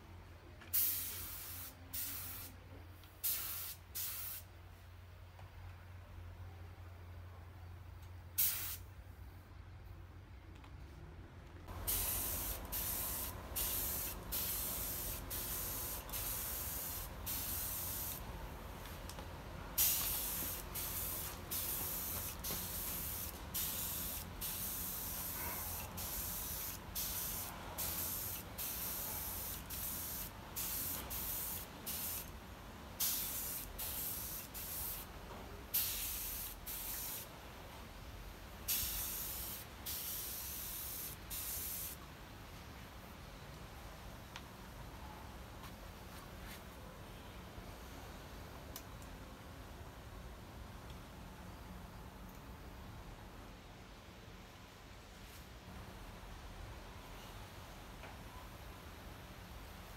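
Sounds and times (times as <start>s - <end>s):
compressed air gun hissing: 0.7s - 2.5s, 3.2s - 4.5s, 8.4s - 8.8s, 11.8s - 18.2s, 19.8s - 32.3s, 33.0s - 35.1s, 35.8s - 37.3s, 38.7s - 42.0s.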